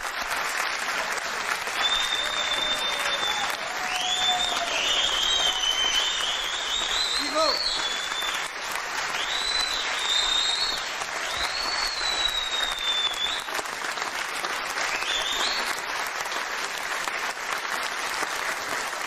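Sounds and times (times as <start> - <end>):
audience applauding: 0.0 - 19.0
high whistles: 1.7 - 13.6, 14.8 - 15.7.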